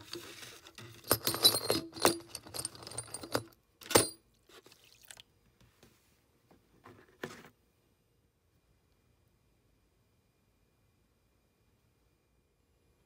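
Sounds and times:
metal tools clinking: 0:00.0 - 0:04.2.

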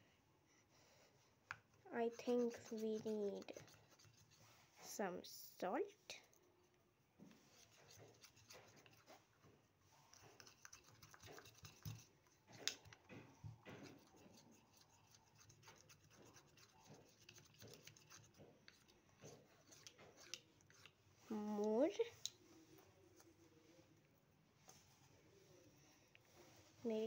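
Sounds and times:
plastic spoon stirring slime: 0:01.4 - 0:05.4, 0:07.3 - 0:23.4.

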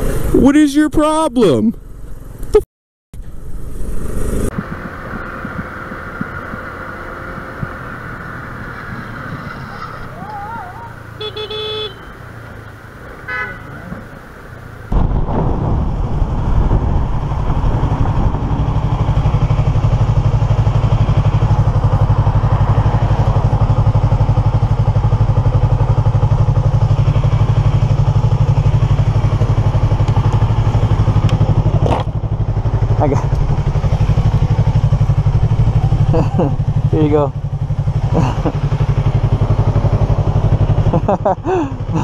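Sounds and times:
motorcycle engine running: 0:03.2 - 0:42.0
vehicle horn toot: 0:11.2 - 0:12.2, 0:13.2 - 0:13.8.

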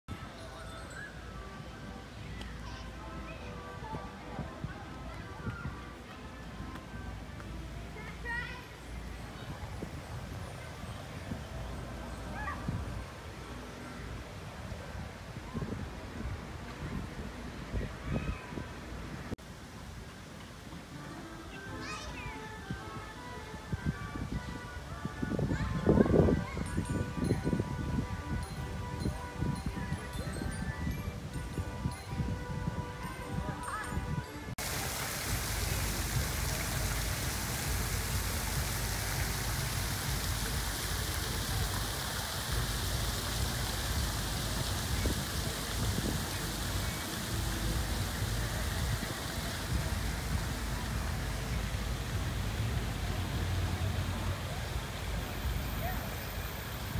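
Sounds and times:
wind buffeting microphone: 0:14.3 - 0:19.4, 0:22.6 - 0:55.6
fountain water splashing into pool: 0:34.6 - 0:56.9.

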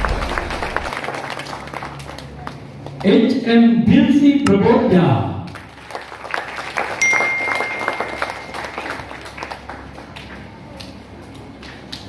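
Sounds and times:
audience clapping: 0:00.0 - 0:03.1, 0:05.5 - 0:12.0
thin steady high tone: 0:07.0 - 0:09.1.

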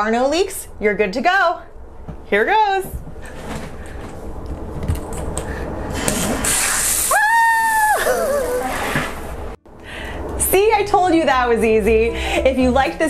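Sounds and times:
water spraying from shower head: 0:06.1 - 0:07.2.

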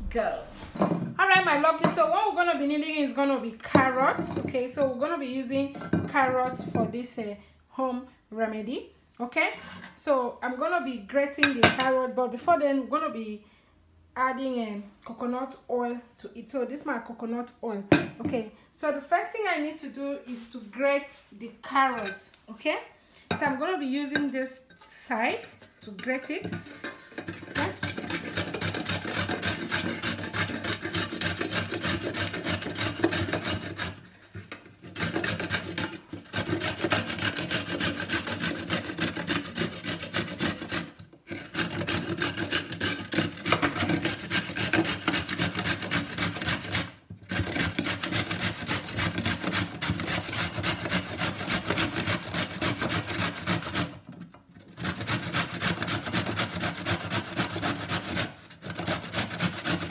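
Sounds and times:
carrot grated on metal grater: 0:26.0 - 0:59.9.

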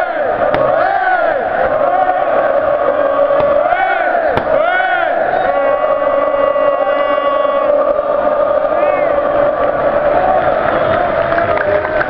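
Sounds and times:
crowd singing a chant: 0:00.0 - 0:11.3.

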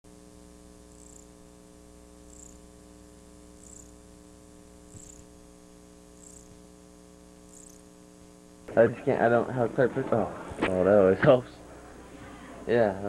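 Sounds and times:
electrical mains hum: 0:00.0 - 0:13.0
faint high chirp: 0:01.0 - 0:01.4, 0:02.2 - 0:02.7, 0:03.6 - 0:04.0, 0:05.0 - 0:05.3, 0:06.2 - 0:06.6, 0:07.5 - 0:07.9.

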